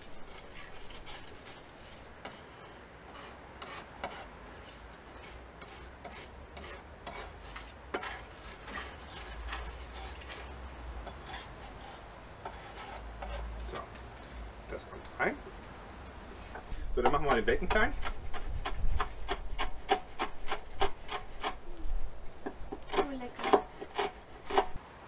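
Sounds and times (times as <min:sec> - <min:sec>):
knife scraping on cutting board: 0:00.0 - 0:10.5, 0:18.0 - 0:21.6, 0:22.8 - 0:24.8.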